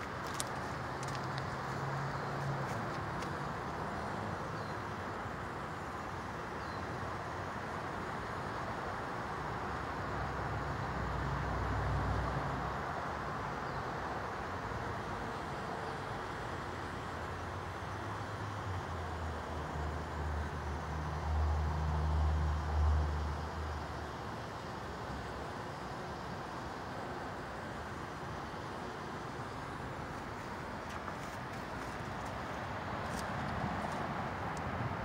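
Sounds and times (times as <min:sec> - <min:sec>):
vehicle engine rumble: 0:00.0 - 0:06.0, 0:14.6 - 0:35.0
street traffic: 0:00.0 - 0:35.0.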